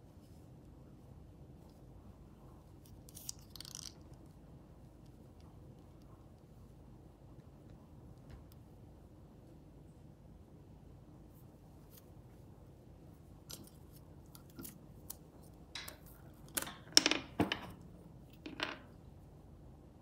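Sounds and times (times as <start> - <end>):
thread and spool rustling and clicking: 2.7 - 6.5, 13.3 - 19.0.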